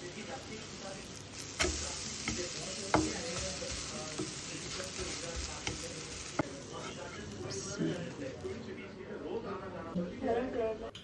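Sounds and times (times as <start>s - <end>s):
omelette sizzling in a pan: 0.0s - 8.8s
spatula tapping a pan: 1.4s - 6.5s
spatula scraping a pan: 1.4s - 8.0s.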